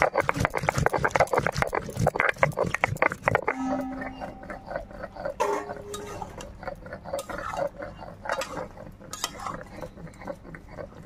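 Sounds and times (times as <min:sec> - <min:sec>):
stone roller grinding spices: 0:00.0 - 0:11.0
metal spatula scraping a wok: 0:03.5 - 0:06.6, 0:07.2 - 0:09.8.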